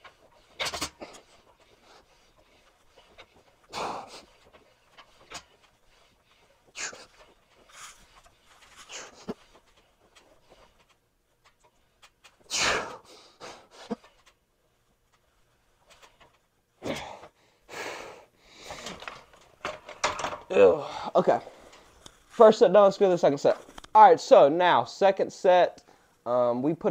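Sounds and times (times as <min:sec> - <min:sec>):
man exhaling forcefully: 0:12.5 - 0:13.7.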